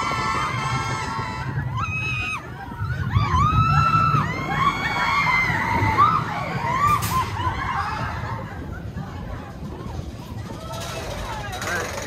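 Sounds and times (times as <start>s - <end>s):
riders screaming and whooping: 0.0s - 12.0s
train rumbling on track: 0.0s - 12.0s.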